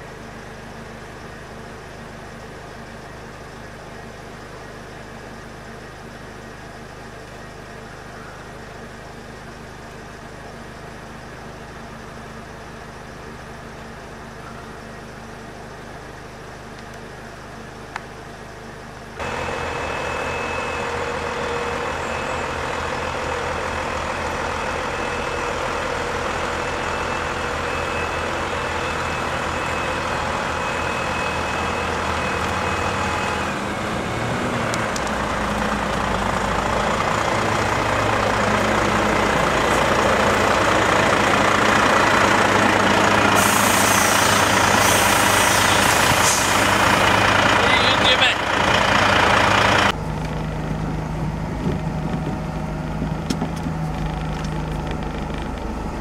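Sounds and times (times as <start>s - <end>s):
truck diesel engine running: 0.0s - 56.0s
air hissing: 43.3s - 46.9s.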